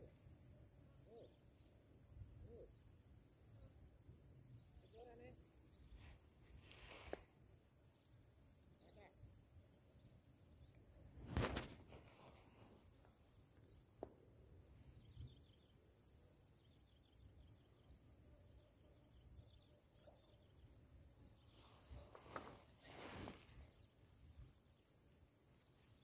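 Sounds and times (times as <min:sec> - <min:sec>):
faint bird chirps: 0:00.9 - 0:07.2, 0:07.9 - 0:14.1, 0:14.8 - 0:26.0
loud rustle: 0:21.6 - 0:23.8.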